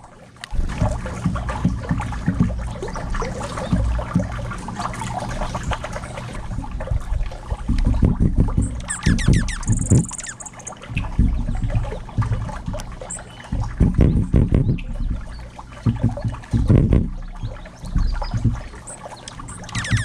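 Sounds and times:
birds pecking and scratching ground: 8.5s - 15.5s, 16.5s - 20.0s
bird call of high sweeps: 8.9s - 10.7s.

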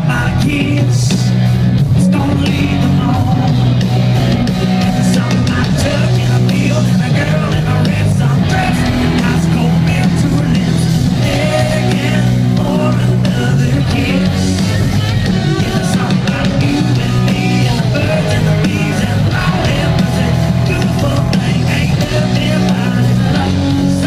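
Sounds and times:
electric guitar: 0.0s - 24.0s
live country-rock band: 0.0s - 24.0s
man singing lead: 0.0s - 24.0s.

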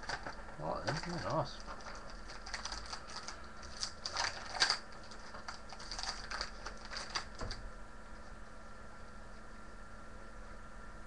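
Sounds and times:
card wrapper crinkling: 0.0s - 7.5s.

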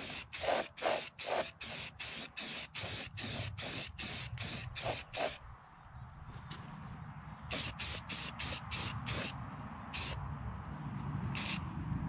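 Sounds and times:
spray bursts hissing: 0.0s - 5.4s, 7.5s - 9.3s, 11.4s - 11.6s.

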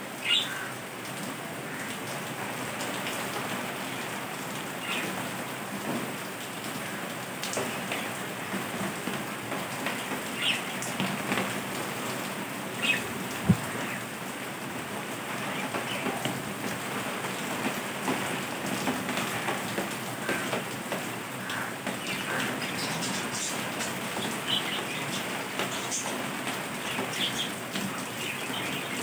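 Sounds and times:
crackling rain-like noise: 0.0s - 29.0s.

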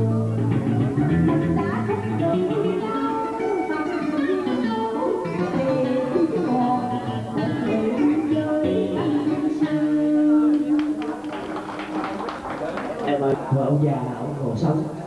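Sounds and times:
plucked guitar: 0.0s - 11.2s
woman singing into a microphone: 1.0s - 11.2s.

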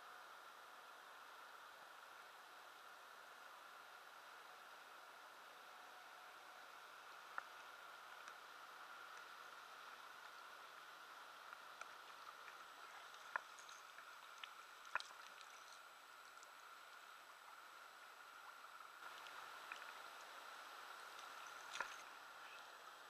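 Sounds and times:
faint hiss: 0.0s - 23.0s
water sloshing and dripping: 11.8s - 16.7s, 18.5s - 20.4s, 21.1s - 22.2s.

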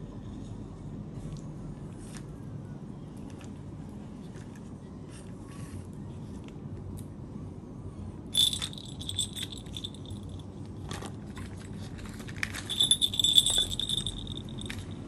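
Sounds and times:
bell jingling inside toy ball: 8.4s - 10.5s, 12.5s - 15.0s.

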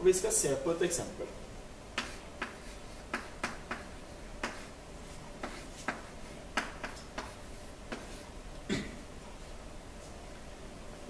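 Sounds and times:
chalk tapping on blackboard: 2.0s - 4.8s, 5.4s - 8.2s.

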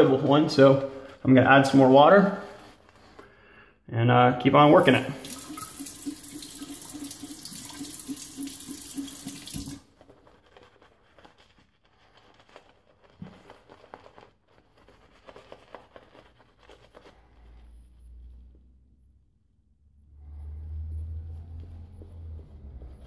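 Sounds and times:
shaving brush lathering: 4.8s - 17.5s
tap running into sink: 5.2s - 9.8s.

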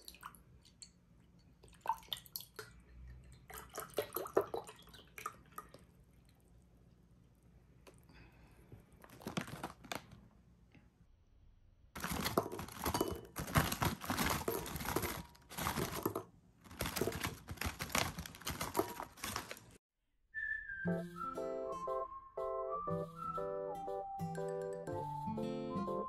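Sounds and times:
plastic snack bag crinkling: 9.0s - 10.3s, 12.0s - 19.8s
acoustic guitar music: 20.9s - 26.0s.

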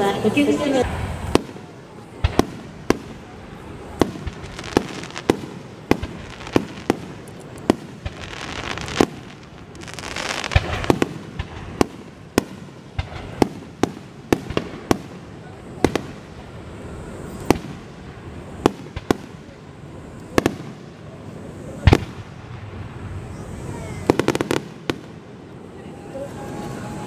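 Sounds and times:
firework hiss: 0.0s - 27.0s
firework shells bursting: 0.8s - 15.2s.

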